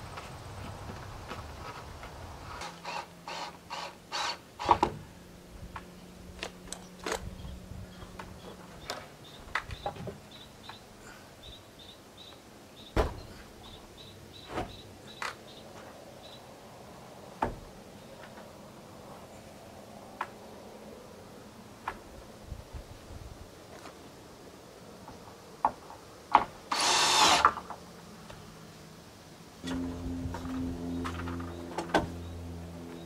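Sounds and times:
bird chirping: 0:06.8 - 0:16.4.

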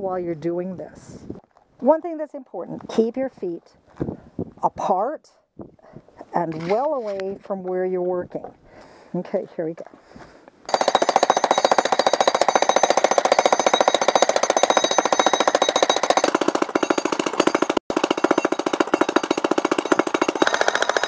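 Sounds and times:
jackhammer breaking concrete: 0:10.7 - 0:21.0.

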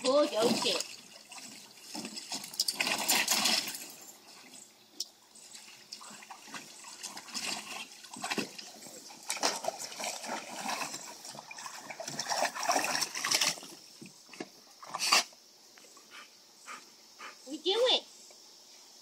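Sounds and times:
water splashing in pool: 0:00.0 - 0:04.6, 0:05.2 - 0:15.3.

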